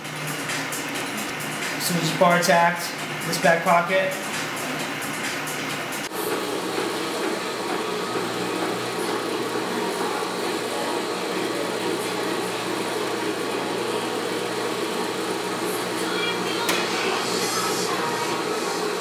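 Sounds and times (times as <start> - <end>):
sewing machine running: 6.1 - 19.0.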